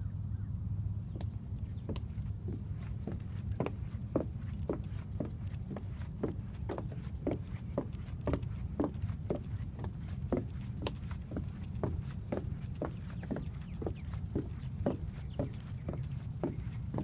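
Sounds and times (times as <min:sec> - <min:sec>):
footsteps on wooden boardwalk: 0:01.2 - 0:17.0
high insect buzz: 0:09.5 - 0:17.0.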